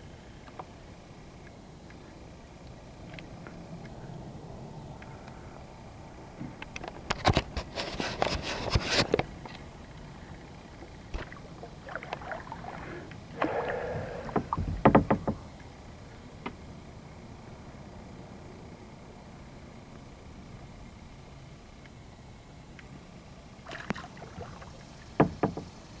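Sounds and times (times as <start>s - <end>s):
kayak paddle strokes splashing: 11.1s - 14.8s, 23.6s - 25.1s
paddle knocks: 13.4s - 15.4s, 25.2s - 25.7s.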